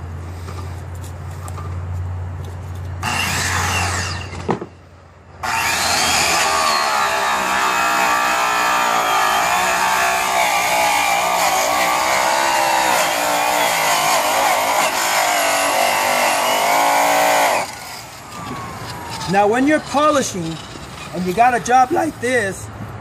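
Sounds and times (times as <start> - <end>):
rotary polisher motor whine: 5.4 - 20.7.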